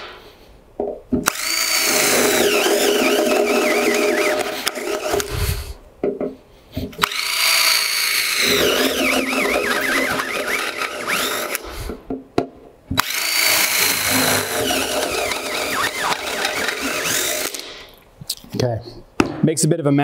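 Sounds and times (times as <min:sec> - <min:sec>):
power drill cutting metal: 0:01.3 - 0:05.6, 0:07.0 - 0:11.8, 0:13.0 - 0:17.9
high-pitched drill bit squeal: 0:01.4 - 0:05.2, 0:07.1 - 0:11.6, 0:13.1 - 0:17.6.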